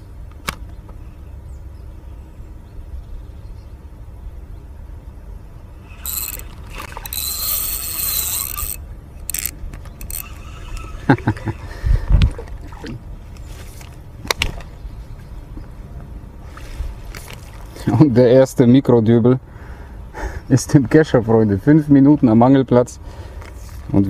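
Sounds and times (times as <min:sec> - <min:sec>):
fishing reel whirring: 0:05.8 - 0:11.6.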